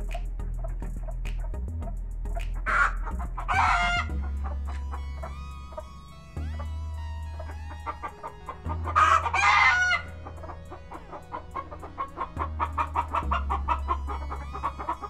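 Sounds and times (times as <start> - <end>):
chickens clucking: 2.6 - 6.7, 7.3 - 15.0
rooster crowing: 8.9 - 10.1.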